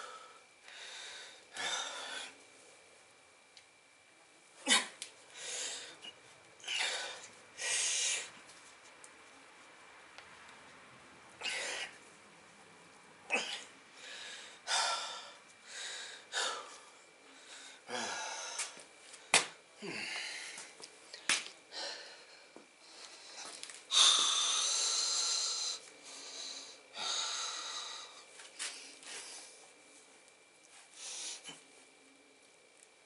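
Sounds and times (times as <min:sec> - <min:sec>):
man breathing hard: 0:00.0 - 0:02.4, 0:05.3 - 0:08.3, 0:13.9 - 0:20.7, 0:21.7 - 0:29.6.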